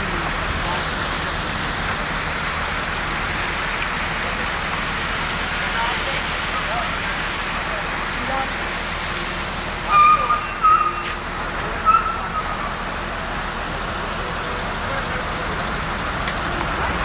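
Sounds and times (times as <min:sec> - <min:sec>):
traffic road noise: 0:00.0 - 0:17.0
vehicle horn honks: 0:09.9 - 0:11.1.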